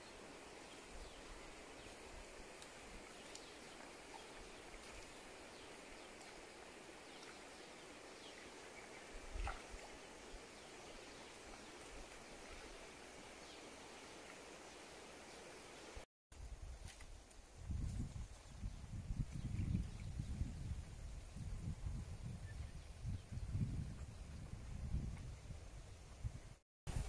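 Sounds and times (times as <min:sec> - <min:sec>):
running stream water: 0:00.0 - 0:16.0.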